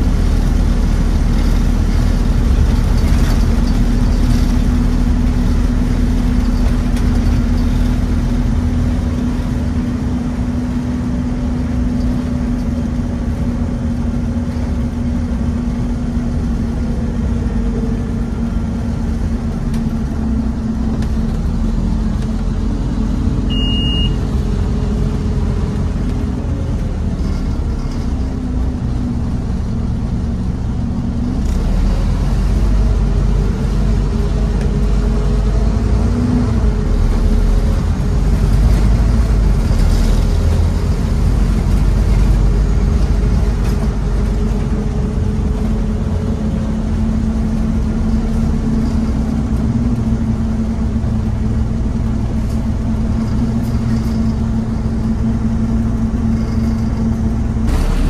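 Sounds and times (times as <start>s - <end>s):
bus diesel engine drone: 0.0s - 58.0s
road rumble: 0.0s - 58.0s
short high beep: 23.5s - 24.2s.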